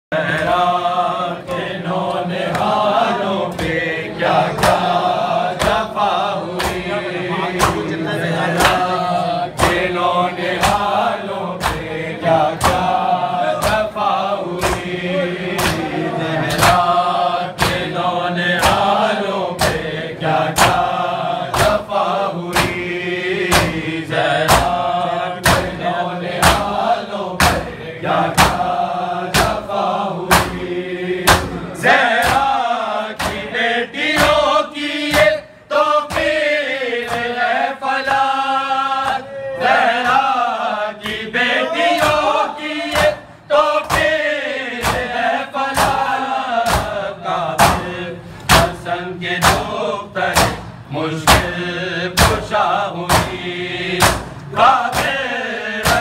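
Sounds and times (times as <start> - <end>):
men chanting in unison: 0.1 - 56.0
hand slaps on chest: 44.8 - 45.1, 50.4 - 50.6, 54.0 - 54.3.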